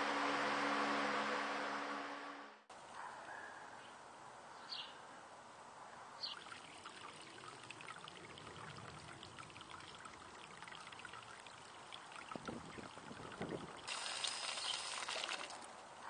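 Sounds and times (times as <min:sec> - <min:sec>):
water pouring into glass cup: 0:06.3 - 0:15.7.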